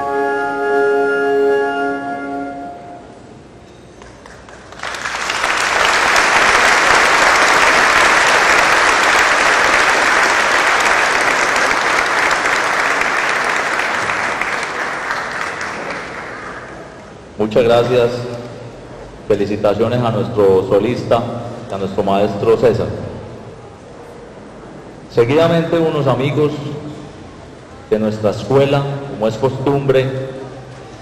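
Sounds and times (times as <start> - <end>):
french horn and band chord: 0.0 - 3.3
audience applause: 4.0 - 17.0.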